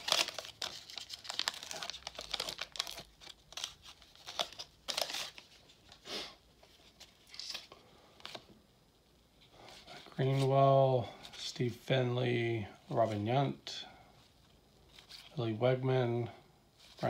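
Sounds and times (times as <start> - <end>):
wrapper tearing and crinkling: 0.0 - 6.0, 7.0 - 7.7.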